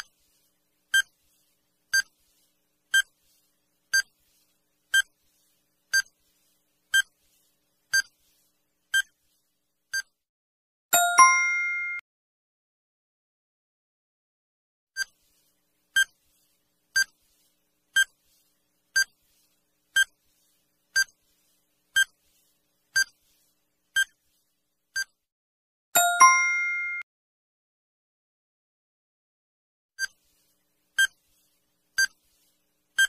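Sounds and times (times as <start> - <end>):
bright ringing chime: 11.0 - 12.0, 26.0 - 27.0.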